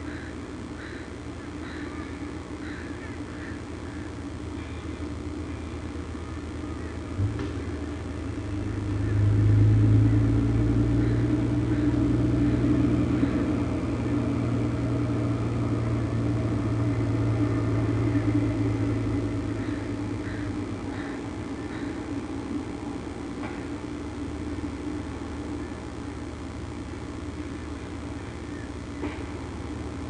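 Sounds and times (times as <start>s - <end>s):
engine hum passing: 8.3s - 22.9s.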